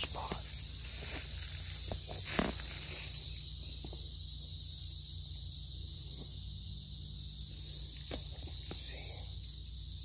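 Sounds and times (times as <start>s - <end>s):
insects chirring: 0.0s - 10.0s
footsteps on dry leaves: 0.4s - 3.2s.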